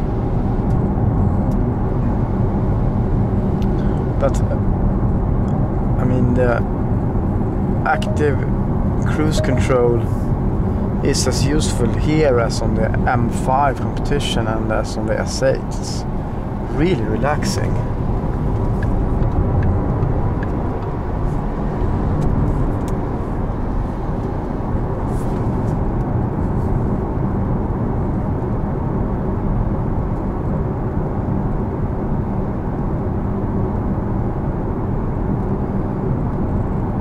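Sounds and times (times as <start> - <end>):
car tyre and wind noise: 0.0 - 7.9, 15.7 - 37.0.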